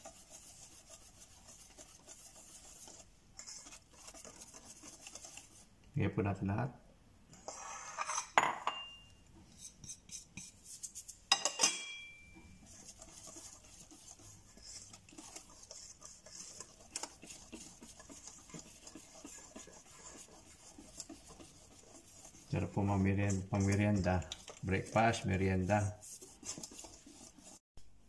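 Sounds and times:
sharp metal clanks with ring: 0:11.5 - 0:12.3
wire whisk ticking against bowl: 0:12.4 - 0:25.2.

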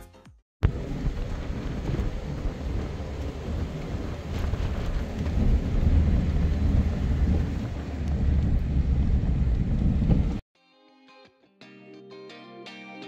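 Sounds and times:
off-road vehicle rumbling: 0:00.6 - 0:10.4.

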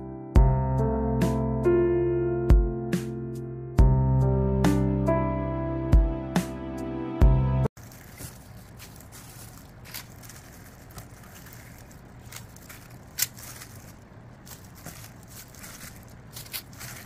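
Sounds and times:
gloved hands rustling shrimp: 0:07.8 - 0:17.0
steady low hum: 0:07.8 - 0:17.0.

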